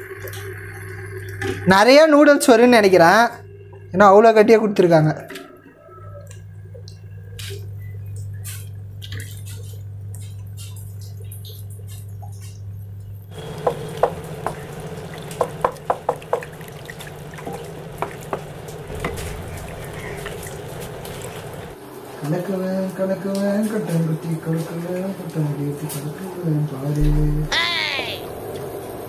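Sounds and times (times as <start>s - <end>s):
cooktop hum: 6.5s - 21.8s
spatula tapping pan: 13.4s - 19.2s.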